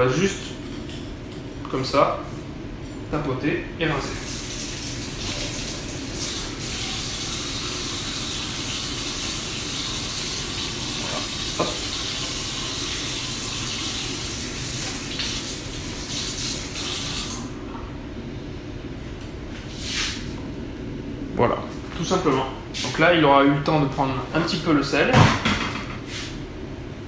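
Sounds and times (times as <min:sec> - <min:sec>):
tap running into metal sink: 0:11.0 - 0:12.4.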